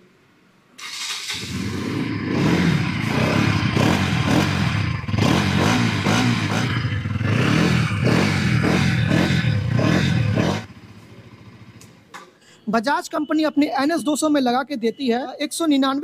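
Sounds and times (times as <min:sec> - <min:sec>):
motorcycle engine revving: 0:00.8 - 0:12.1.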